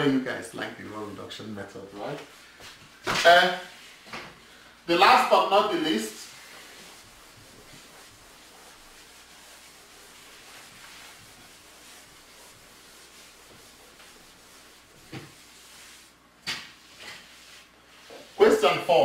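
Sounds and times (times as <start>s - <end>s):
eraser rubbing on chalkboard: 5.2s - 19.0s.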